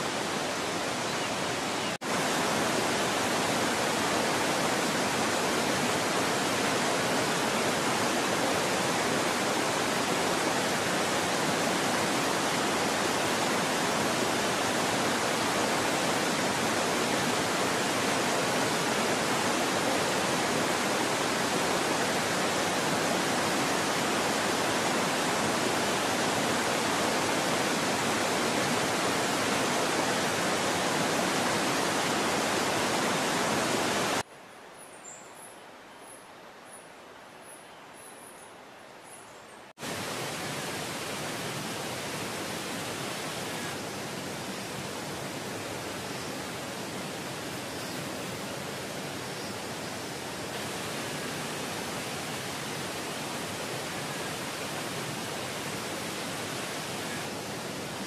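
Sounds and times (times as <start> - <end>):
steady rushing hiss: 39.8 - 58.0.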